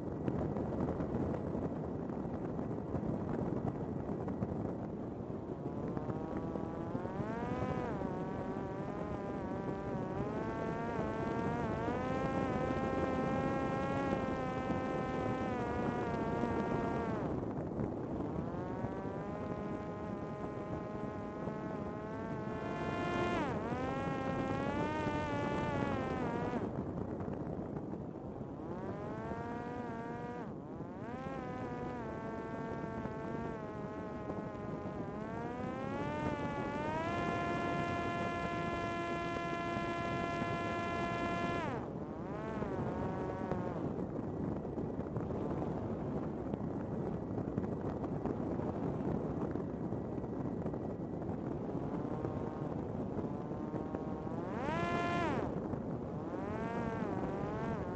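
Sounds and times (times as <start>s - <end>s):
wind rush: 0.0s - 57.9s
drone propeller whining: 5.3s - 27.2s, 28.4s - 44.3s, 51.3s - 57.9s.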